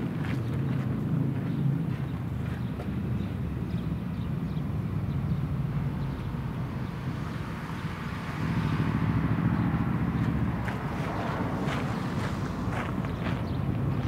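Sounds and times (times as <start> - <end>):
diesel locomotive rumble: 4.8 - 14.0.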